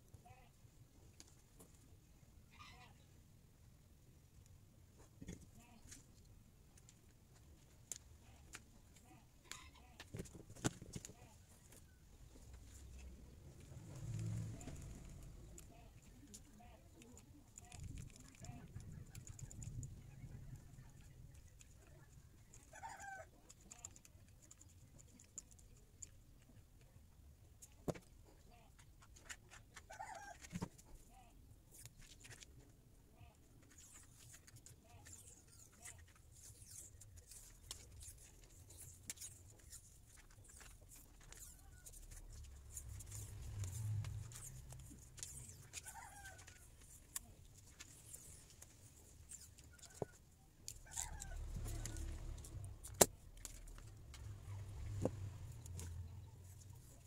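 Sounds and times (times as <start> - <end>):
faint animal calls: 2.5 - 3.1.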